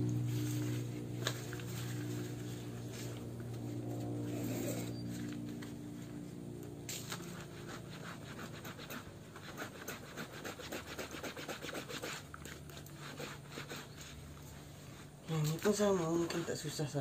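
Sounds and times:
hands scrubbing wet fabric: 0:07.0 - 0:17.0.

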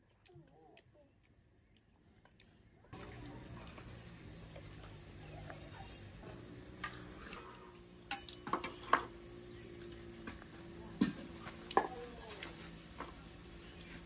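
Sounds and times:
utensils clinking on steel bowls: 0:06.8 - 0:09.2.

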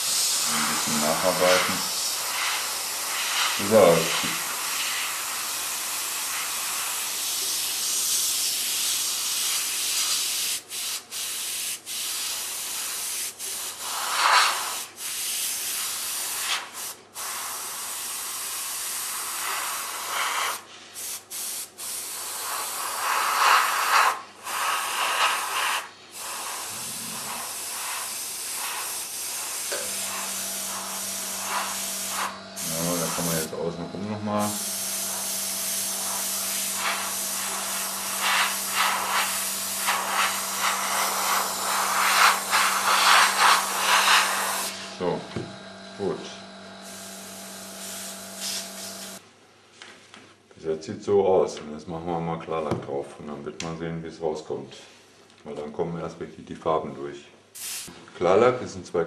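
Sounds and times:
airbrush hissing: 0:00.0 - 0:49.2, 0:57.6 - 0:57.9.

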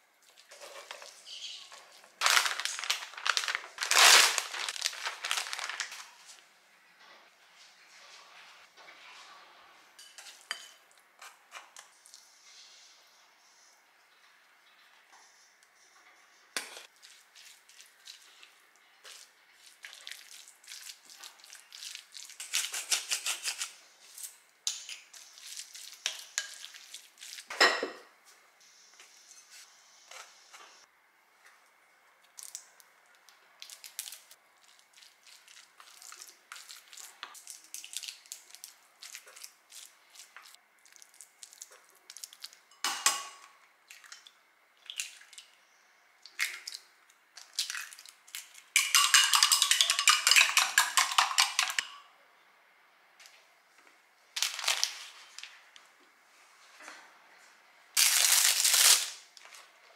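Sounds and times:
utensils knocking on bowls: 0:48.8 - 0:52.1.

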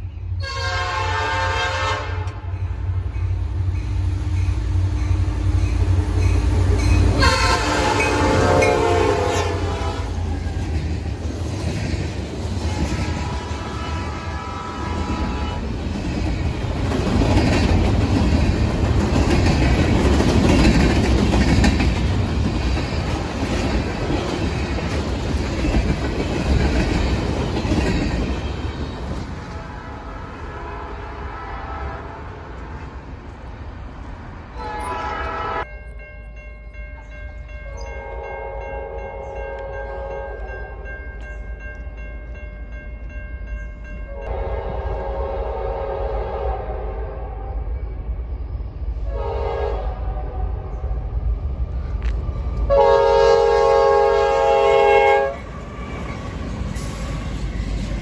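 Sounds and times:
train horn blasts: 0:00.4 - 0:02.6, 0:07.1 - 0:10.3, 0:12.8 - 0:15.7, 0:29.4 - 0:32.7, 0:34.6 - 0:35.7, 0:37.7 - 0:40.9, 0:44.1 - 0:47.9, 0:49.0 - 0:50.8, 0:52.7 - 0:56.2.

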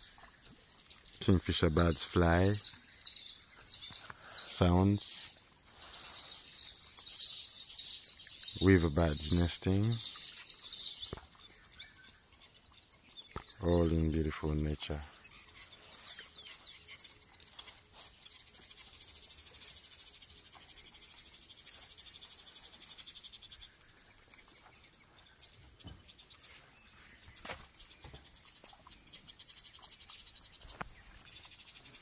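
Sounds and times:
insects trilling: 0:00.0 - 0:25.2.

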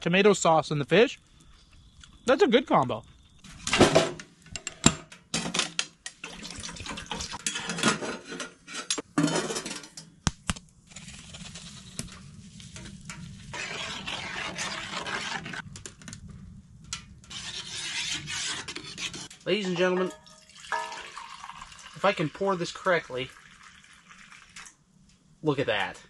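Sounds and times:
liquid pouring into steel pot: 0:06.2 - 0:07.4, 0:19.6 - 0:24.8
clinks against pot: 0:19.9 - 0:21.1.

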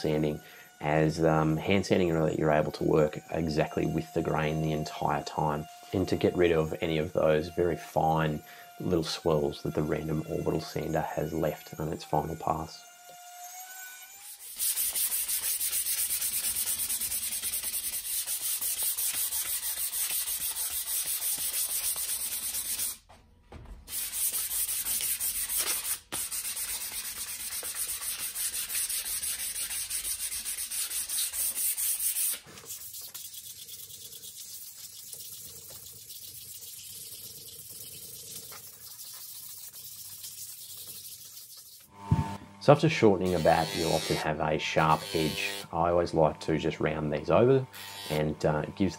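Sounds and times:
sandpaper scraping wood: 0:14.2 - 0:23.0, 0:23.9 - 0:48.9.

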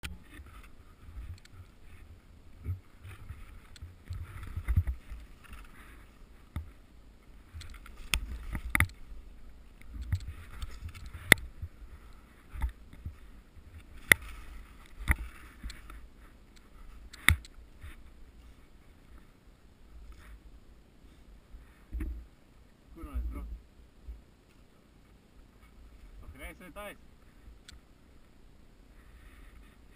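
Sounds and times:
skis swishing through snow: 0:10.2 - 0:17.1.

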